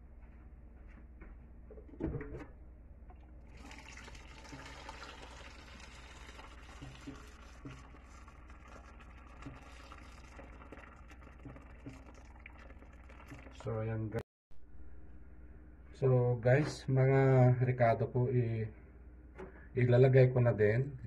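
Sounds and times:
tap water filling a metal pot: 3.5s - 13.7s.

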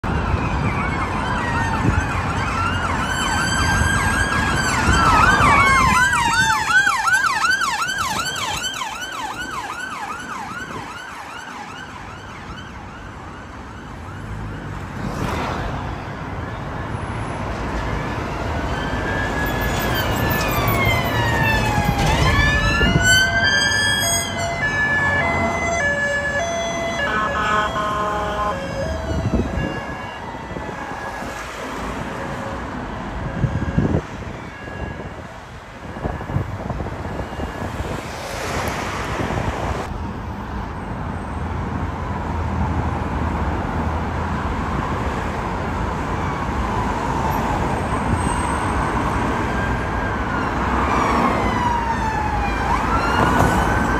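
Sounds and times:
fire engine siren: 0.0s - 41.3s, 44.2s - 53.9s
road traffic noise: 0.0s - 53.9s.

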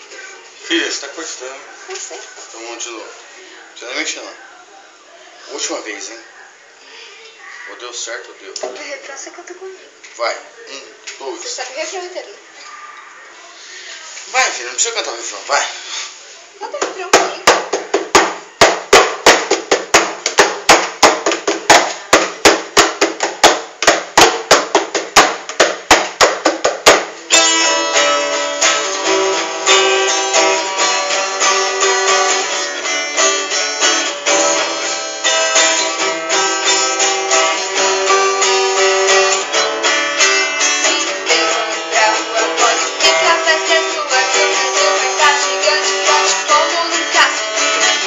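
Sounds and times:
acoustic guitars strumming: 16.9s - 48.0s.

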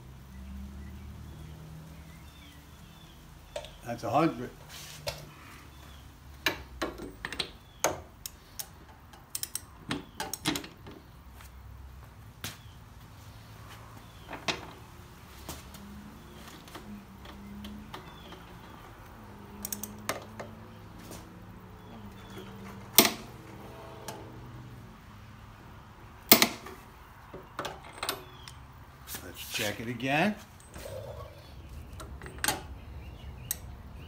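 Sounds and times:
metallic clicks of wrench and socket: 8.2s - 9.7s, 19.6s - 20.0s.

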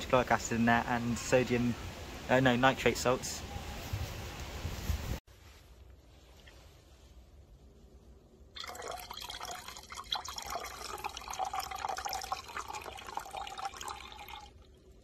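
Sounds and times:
liquid pouring and splashing: 8.6s - 15.0s.

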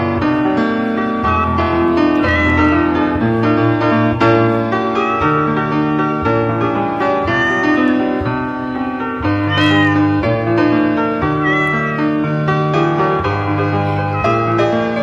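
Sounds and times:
piano music: 0.0s - 15.0s
cat meowing: 1.2s - 3.4s, 4.1s - 6.0s, 7.2s - 8.2s, 9.4s - 10.3s, 11.2s - 12.4s, 13.6s - 15.0s.

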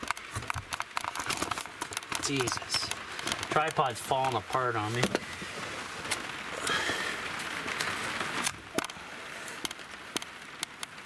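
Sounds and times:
handling clicks and knocks: 0.0s - 5.3s
rain pattering on roof: 0.0s - 11.0s
towel rustling and scraping: 4.8s - 6.4s.

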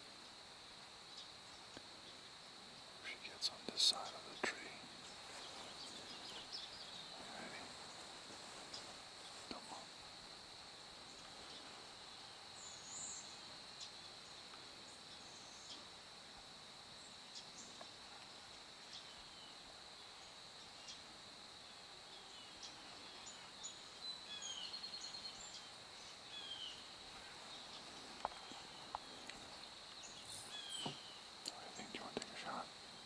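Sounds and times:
high insect drone: 0.0s - 33.0s
falling bird chirps: 24.4s - 31.3s.

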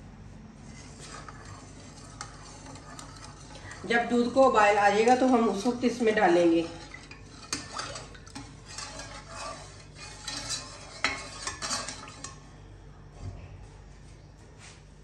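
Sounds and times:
spatula scraping metal saucepan: 0.6s - 12.4s.

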